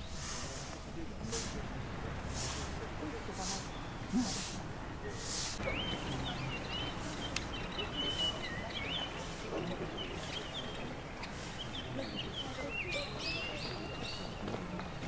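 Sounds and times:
songbirds chirping: 0.0s - 15.0s
steady outdoor hiss: 0.0s - 15.0s.

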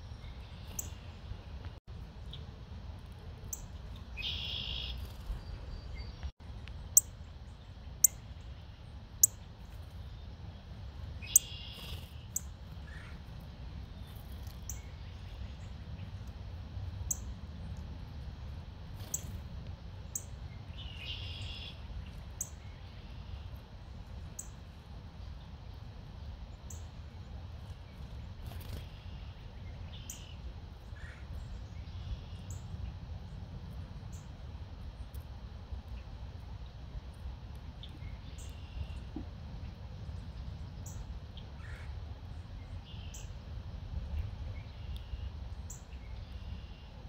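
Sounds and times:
songbirds calling: 0.0s - 2.5s, 3.4s - 16.3s, 19.0s - 23.7s, 26.4s - 33.0s, 37.6s - 47.0s.

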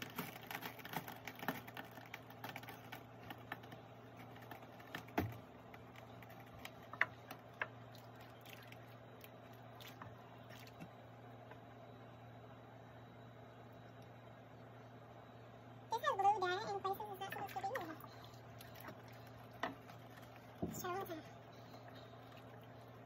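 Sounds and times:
low steady hum: 0.0s - 23.0s
water dripping: 0.4s - 11.0s, 17.2s - 23.0s.

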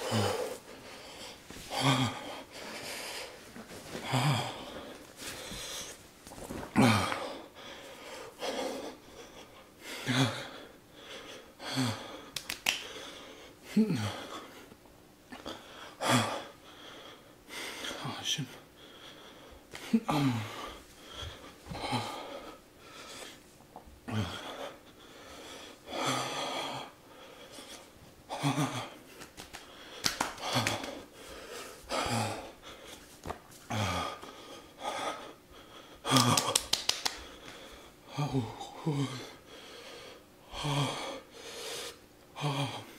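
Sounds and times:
man breathing hard: 0.0s - 6.0s, 6.8s - 23.4s, 24.1s - 42.9s
man breathing out heavily: 0.0s - 6.0s
man groaning: 38.1s - 39.3s.

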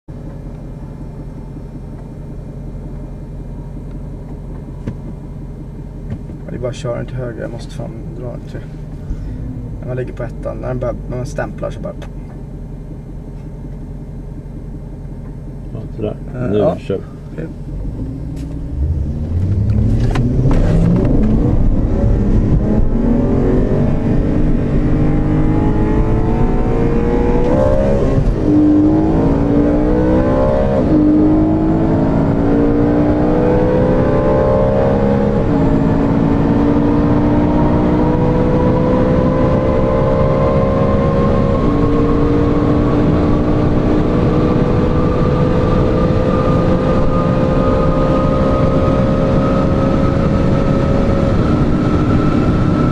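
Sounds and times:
car engines accelerating hard: 15.7s - 52.9s.

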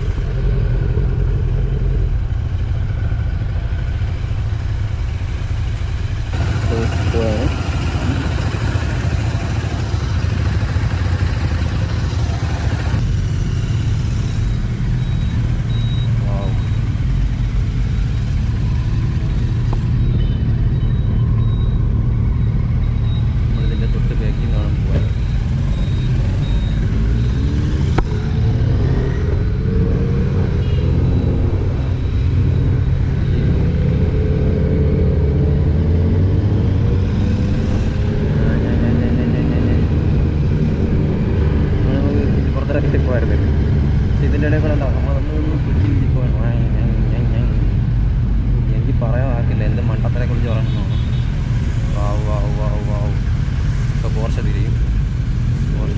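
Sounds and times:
motorcycle engines rumbling: 0.0s - 55.9s.

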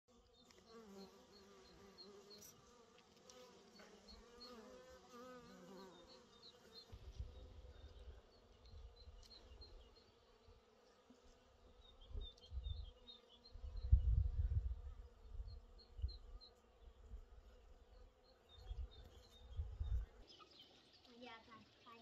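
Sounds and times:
honey bees buzzing: 0.1s - 12.0s.

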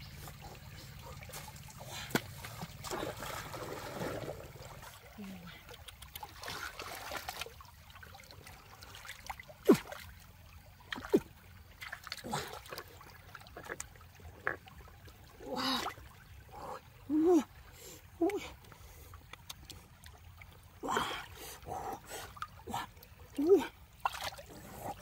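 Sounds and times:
stream trickling: 0.0s - 25.0s.

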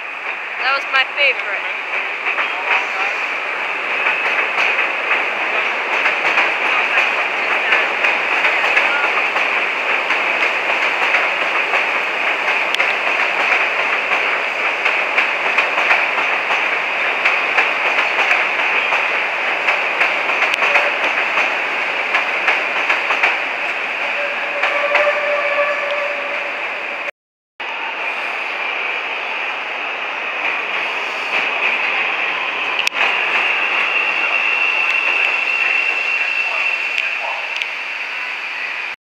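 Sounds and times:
elevated train rumble and clatter: 0.0s - 39.0s
wheels clicking over rail joints: 3.8s - 23.8s
steady tone: 23.8s - 27.1s.

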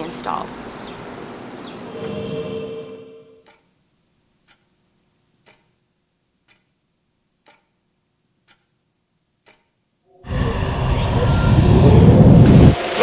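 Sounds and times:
clock ticking faintly: 3.3s - 10.0s.

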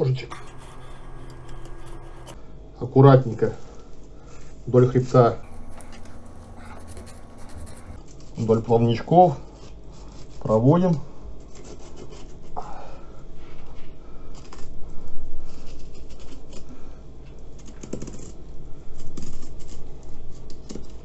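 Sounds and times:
knife scraping fish scales: 0.3s - 2.4s, 5.4s - 8.0s.

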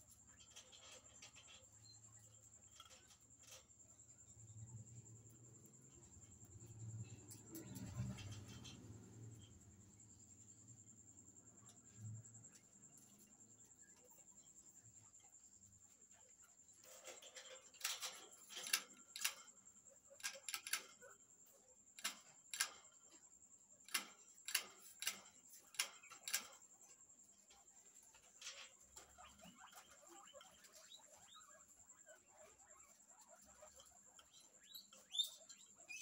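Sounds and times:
sharp clicks and taps in cage: 0.4s - 1.6s, 2.2s - 3.7s, 6.0s - 9.4s, 15.8s - 31.3s
guinea pigs scurrying: 11.3s - 36.0s.

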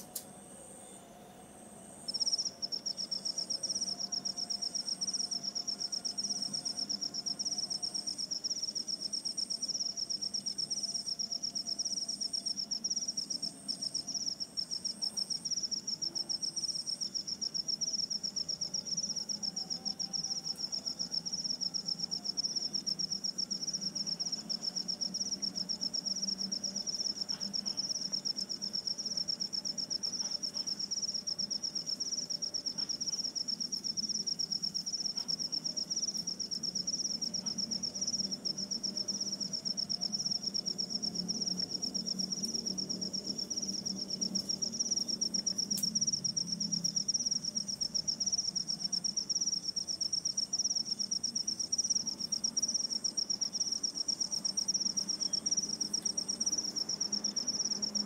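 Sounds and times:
high insect trill: 0.0s - 58.0s
higher insect chirp: 0.0s - 58.0s.

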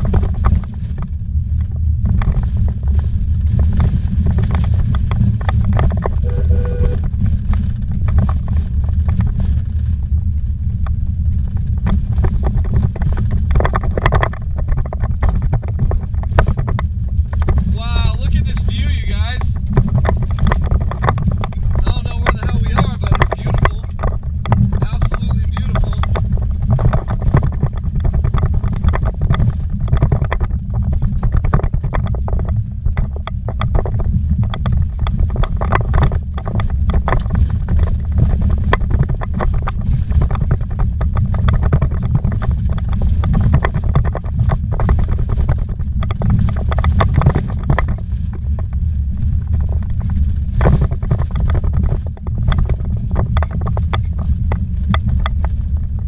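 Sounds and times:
knocks and rattles: 0.0s - 10.0s, 10.8s - 56.0s
vehicle rumbling on dirt track: 0.0s - 56.0s.

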